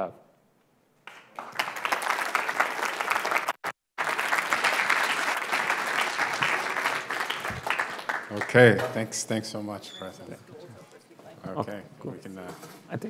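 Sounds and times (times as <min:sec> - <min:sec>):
audience applauding: 0:01.0 - 0:09.0.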